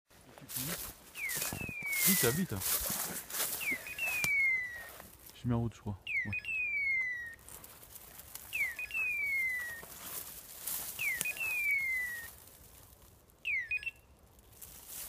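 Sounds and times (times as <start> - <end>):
brush rustling: 0.1 - 5.6, 6.7 - 15.0
electronic beeper collar call: 1.2 - 2.8, 3.4 - 5.0, 6.0 - 7.4, 8.5 - 9.8, 11.0 - 12.3, 13.5 - 14.1.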